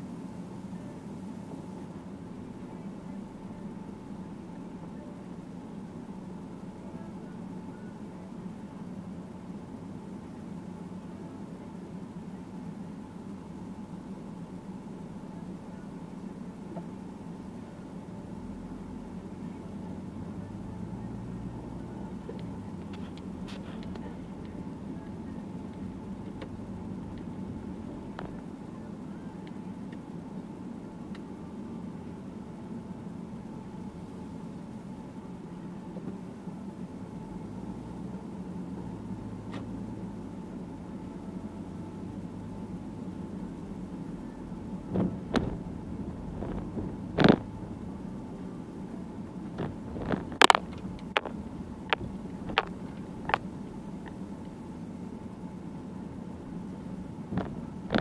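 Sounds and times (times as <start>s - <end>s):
car engine and tyres rumble: 0.0s - 58.0s.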